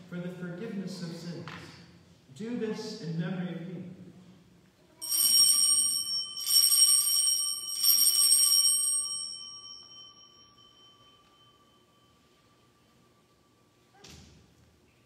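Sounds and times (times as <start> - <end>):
altar bells ringing: 5.0 - 13.8.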